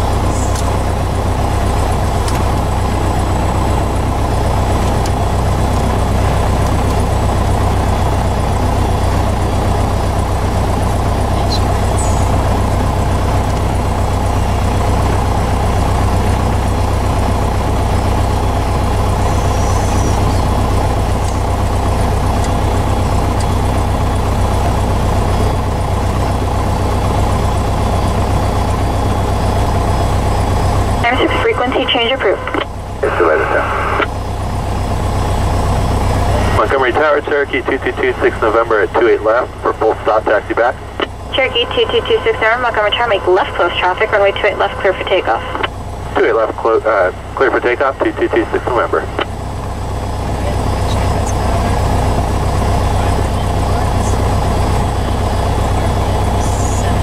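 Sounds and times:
propeller plane engine drone: 0.0s - 57.0s.

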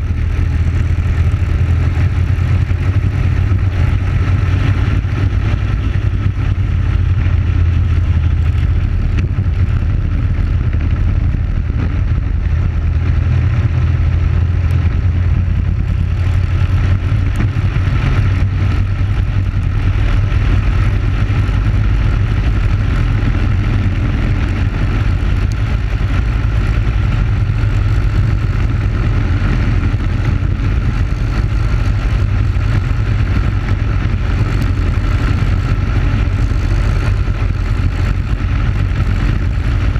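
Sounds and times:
kart engine running hard: 0.0s - 39.9s.

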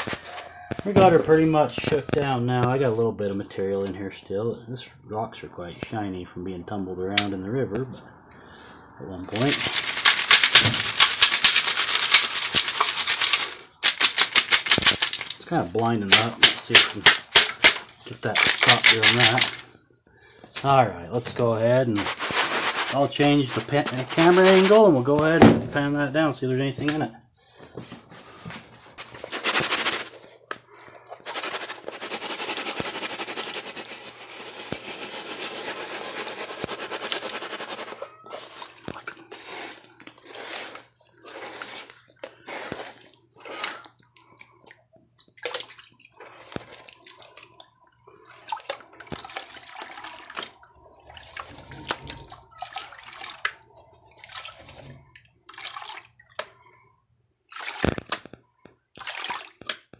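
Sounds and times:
water splashing in a tub: 30.8s - 56.7s, 57.4s - 59.9s.

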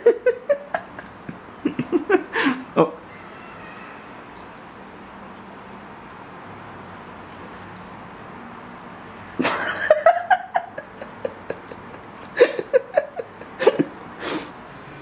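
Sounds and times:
cat making short high calls: 3.1s - 4.1s.

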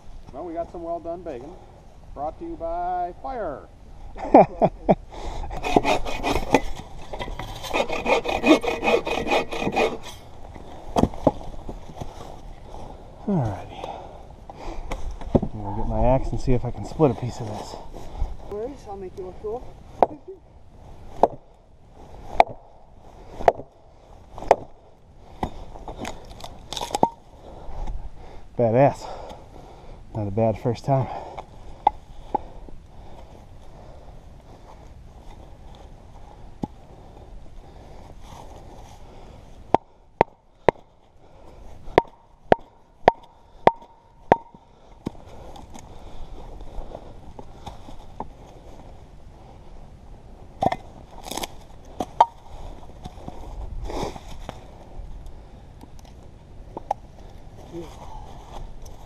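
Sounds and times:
axe splitting firewood: 5.4s - 12.2s, 21.2s - 21.5s, 22.3s - 22.7s, 23.4s - 23.7s, 24.3s - 27.2s, 39.6s - 40.9s, 41.8s - 45.9s, 50.6s - 53.4s
axe chopping wood: 21.2s - 21.5s, 22.3s - 22.6s, 23.4s - 23.7s, 24.4s - 24.8s, 41.9s - 45.2s, 50.6s - 52.4s.

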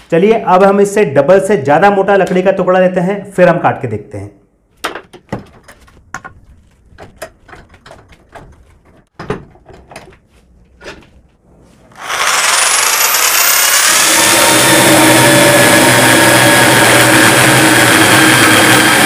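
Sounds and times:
knocks and clunks of wooden board: 4.8s - 10.2s
electric drill chainsaw whine: 11.9s - 19.0s.

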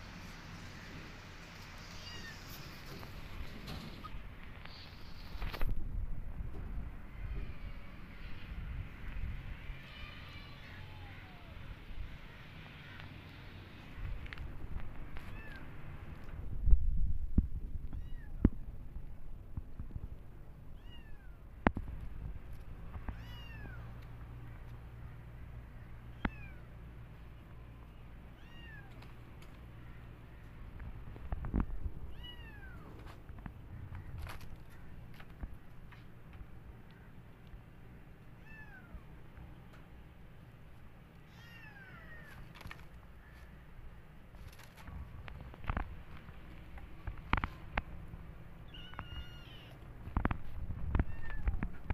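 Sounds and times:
kitten meowing: 23.2s - 23.9s, 28.4s - 29.0s, 32.1s - 32.8s, 48.7s - 49.8s, 51.0s - 51.6s.

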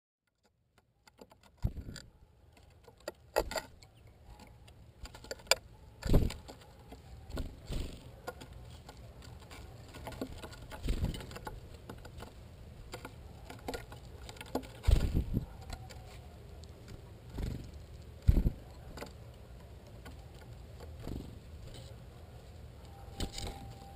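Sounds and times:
bird pecking seeds on wood: 0.3s - 23.9s.

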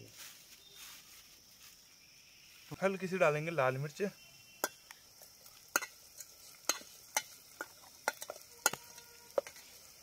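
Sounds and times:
faint sizzle of frying: 0.1s - 10.0s
spoon knocking against pan: 6.6s - 9.6s.

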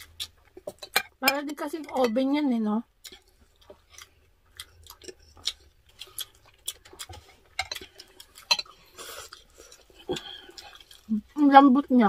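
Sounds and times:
cutlery tapping on ceramic plates: 0.7s - 2.2s.

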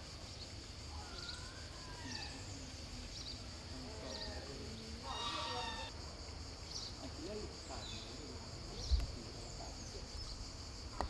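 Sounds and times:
insects buzzing drone: 0.0s - 11.0s
faint sliding calls: 5.0s - 5.9s.

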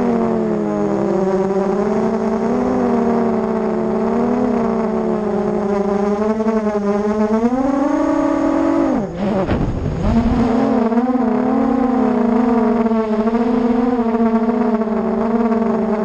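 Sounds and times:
drone motors whining: 0.0s - 16.0s
low rumble: 9.0s - 16.0s.

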